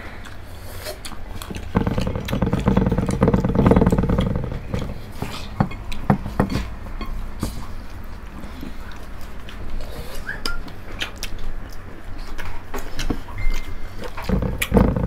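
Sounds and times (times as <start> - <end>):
eating clicks and smacks: 0.2 - 3.1, 7.4 - 15.0
rattling engine-like buzz: 1.5 - 7.3, 14.2 - 15.0.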